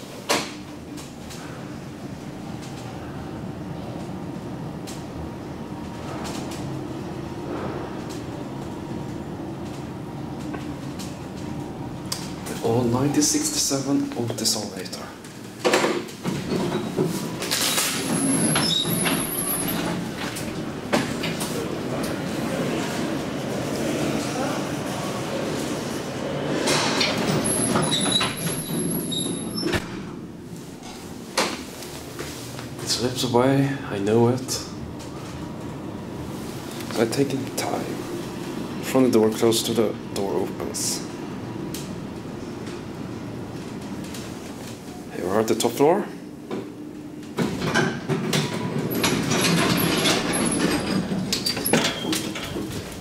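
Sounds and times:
elevator doors rumbling shut: 0:00.0 - 0:13.9, 0:15.4 - 0:31.7, 0:46.6 - 0:53.0
elevator door clicks: 0:47.2 - 0:52.8.

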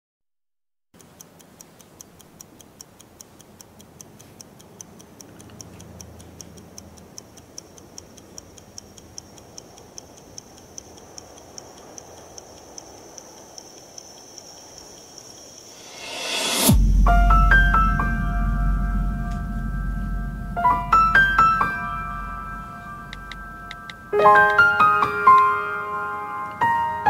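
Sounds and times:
wristwatch ticking: 0:01.0 - 0:16.7, 0:22.8 - 0:24.6
faint low hum: 0:16.8 - 0:24.2.

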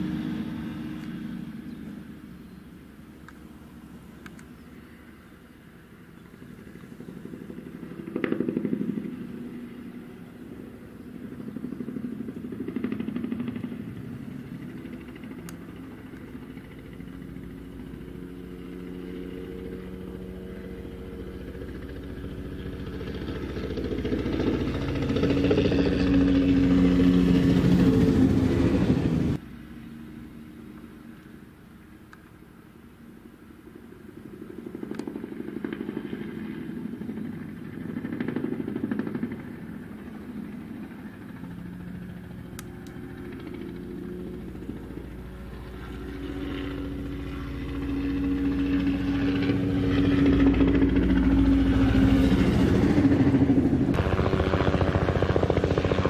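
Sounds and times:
helicopter flying low: 0:00.0 - 0:56.0.

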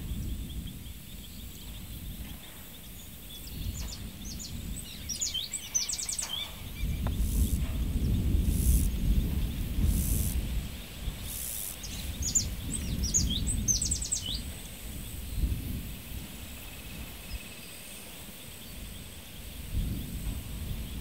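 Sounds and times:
wind rumble on microphone: 0:00.0 - 0:21.0
bird chirping: 0:00.1 - 0:15.4.

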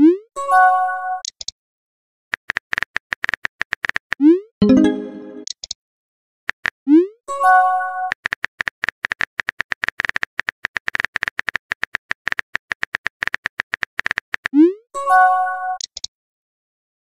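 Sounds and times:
text message alert tone: 0:04.6 - 0:05.5.

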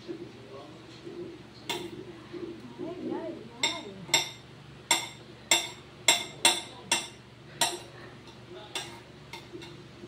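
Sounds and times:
knife chopping on a plate: 0:03.6 - 0:09.8.

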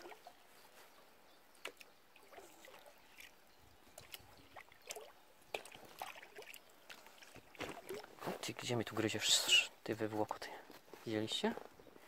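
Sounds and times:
water trickling and dripping: 0:00.0 - 0:09.2.

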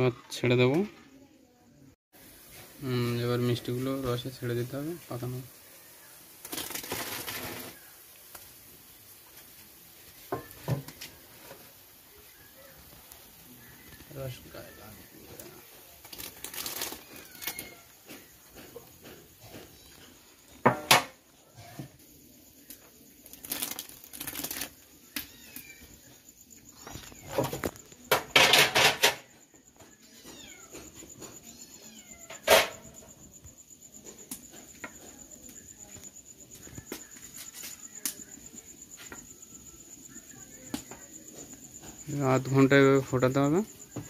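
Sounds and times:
high insect trill: 0:02.2 - 0:44.0
knocks and clatters: 0:27.2 - 0:29.5.

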